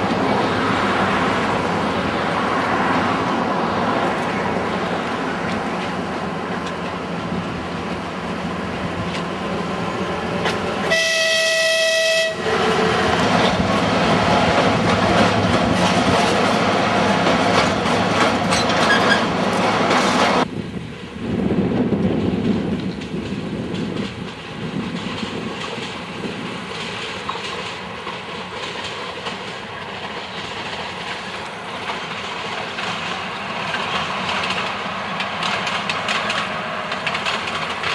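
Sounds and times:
diesel locomotive running: 0.0s - 37.9s
train horn blast: 10.8s - 12.8s.

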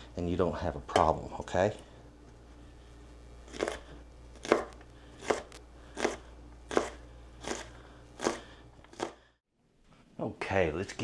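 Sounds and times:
knife chopping on plastic board: 4.4s - 7.6s.

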